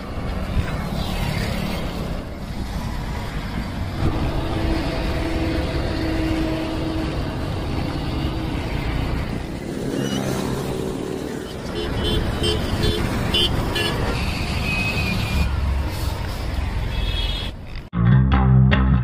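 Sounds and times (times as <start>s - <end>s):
engine and traffic rumble: 0.0s - 18.0s.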